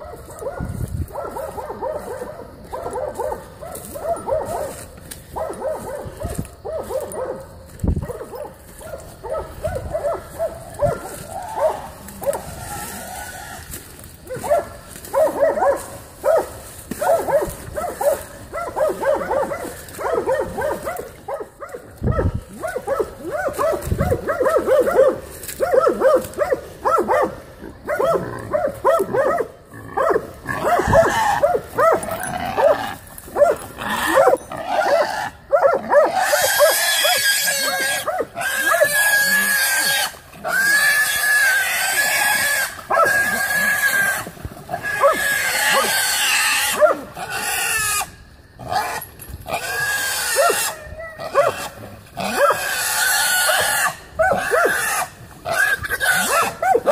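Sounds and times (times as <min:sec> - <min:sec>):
dogs barking and yelping: 0:00.0 - 0:56.9
hog squealing: 0:30.5 - 0:31.6, 0:36.0 - 0:48.1.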